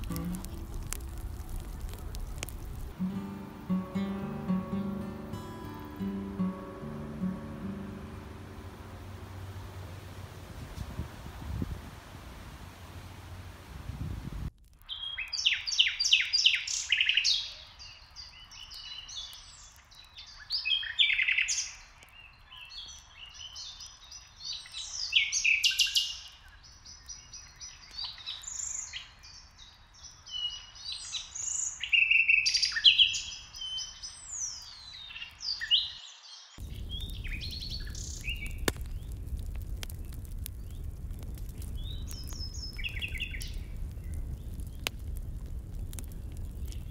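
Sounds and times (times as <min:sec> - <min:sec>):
steady rushing noise: 0:06.8 - 0:14.5
songbirds singing: 0:14.9 - 0:46.9.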